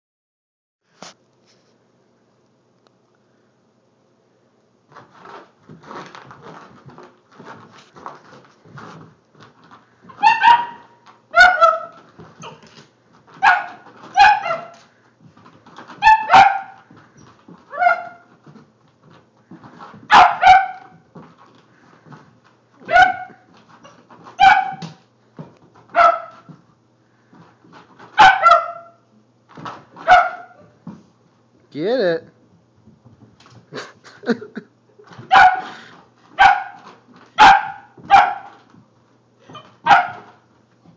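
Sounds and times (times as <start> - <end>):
dog paws thudding on carpet: 4.8 - 31.6, 32.4 - 40.9
dog barking high-pitched: 10.1 - 12.6, 13.4 - 14.8, 16.0 - 16.9, 17.7 - 18.3, 20.1 - 21.0, 22.8 - 23.5, 24.4 - 24.9, 25.9 - 26.5, 28.2 - 29.0, 30.0 - 30.7, 35.3 - 35.8, 36.4 - 36.8, 37.4 - 38.6, 39.5 - 40.4.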